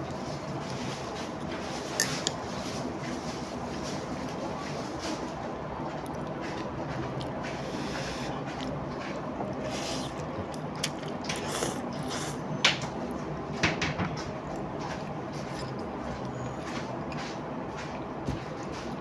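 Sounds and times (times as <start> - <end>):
steady background noise: 0.0 - 19.0
person slurping noodles: 7.6 - 8.4, 9.7 - 10.2, 11.4 - 12.4.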